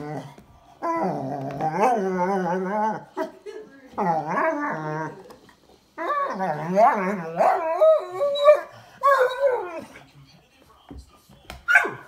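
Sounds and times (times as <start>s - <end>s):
dog howling playfully: 0.0s - 3.3s, 4.0s - 5.2s, 6.0s - 9.9s.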